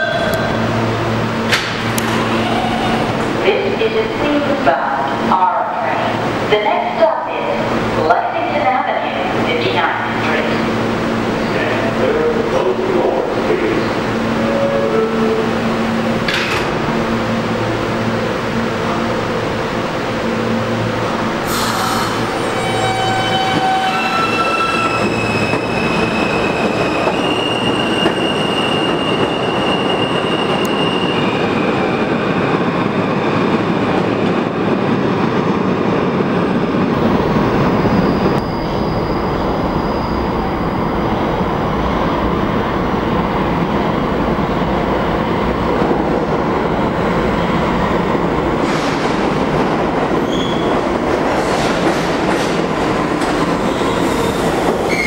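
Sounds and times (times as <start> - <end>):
steel wheels screeching on rails: 21.4 - 31.8, 50.2 - 55.0.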